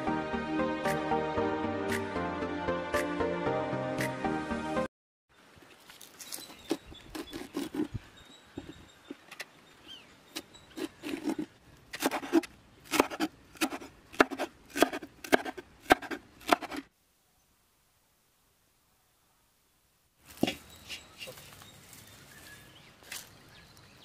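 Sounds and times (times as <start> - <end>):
knife chopping on cutting board: 12.0 - 16.8.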